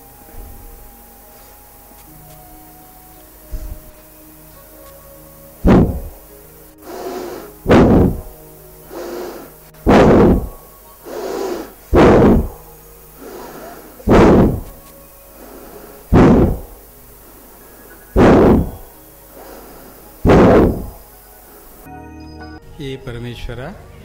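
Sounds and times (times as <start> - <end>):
forced breathing close to microphone: 5.6 - 21.9.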